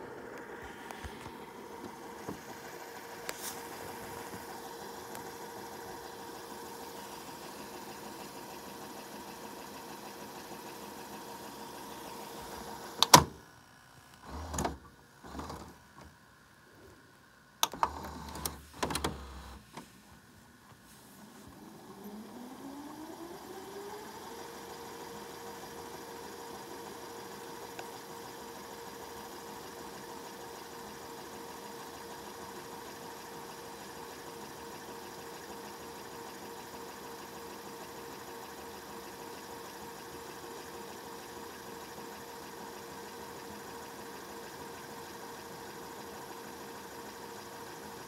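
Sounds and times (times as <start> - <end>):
motor whine rising: 0.0 - 8.1, 21.3 - 25.2
cassette mechanism clunks: 13.0 - 13.4, 17.6 - 19.8
tape motor whirring: 14.0 - 16.1, 17.6 - 19.7, 21.4 - 48.0.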